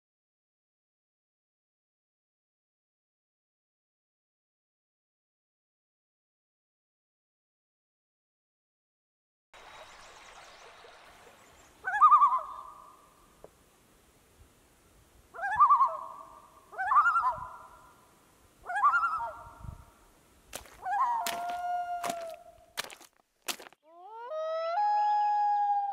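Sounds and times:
loon tremolo call: 11.8 - 13.2, 23.9 - 25.9.

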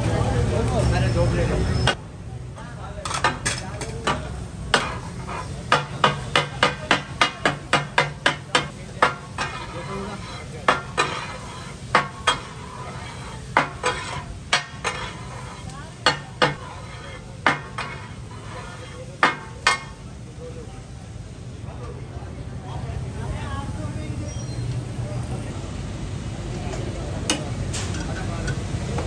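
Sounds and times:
metal spatulas clanking on griddle: 3.0 - 20.2
faint frying sizzle: 3.4 - 22.0.

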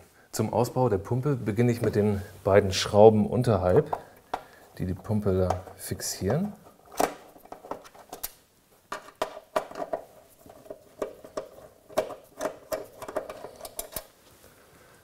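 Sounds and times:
screwdriver clicking and scraping metal: 9.8 - 14.1.

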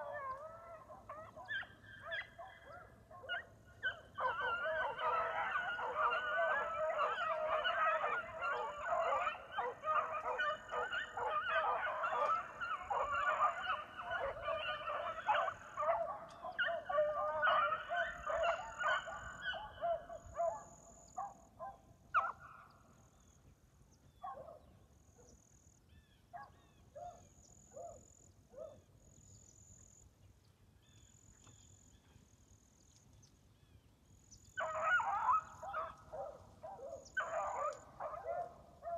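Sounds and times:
dogs baying: 0.0 - 22.5, 34.6 - 38.9.

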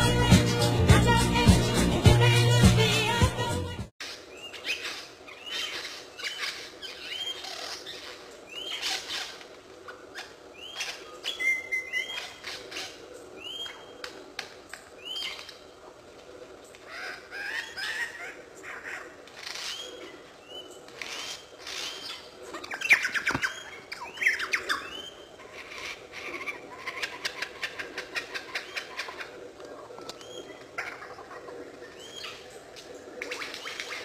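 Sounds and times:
lyrebird singing varied calls: 4.3 - 14.0, 16.9 - 32.6.

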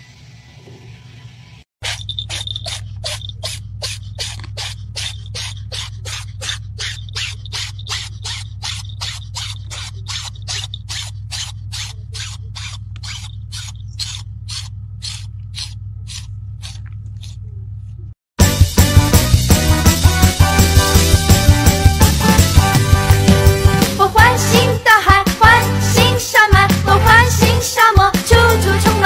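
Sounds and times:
steady low hum: 0.0 - 18.2
rhythmic scraping strokes: 1.8 - 17.5.

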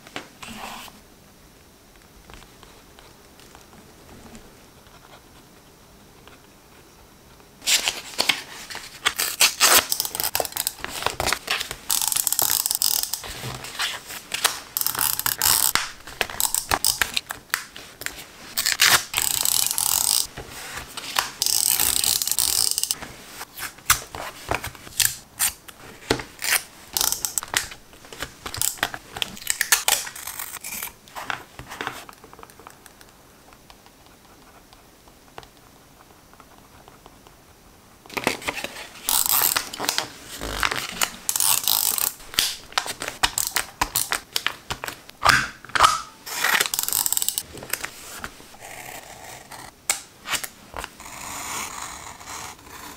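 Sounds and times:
paper and tape handling: 7.6 - 33.0, 38.1 - 45.1, 45.8 - 48.5
tape roller rasping and clicking: 14.8 - 17.2, 18.6 - 20.3, 21.2 - 23.0, 26.4 - 27.8, 46.4 - 47.4.

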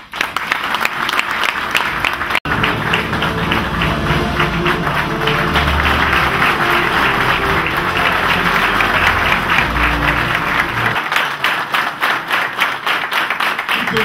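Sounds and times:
audience applauding: 0.0 - 14.0
background music: 2.5 - 11.1.

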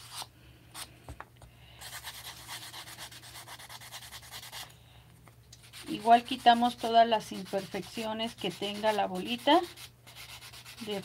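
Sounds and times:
nail file rasping on styrofoam: 5.6 - 11.0.

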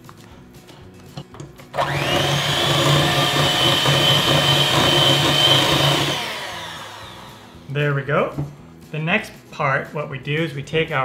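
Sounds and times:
electric hand mixer whirring: 1.8 - 7.7.

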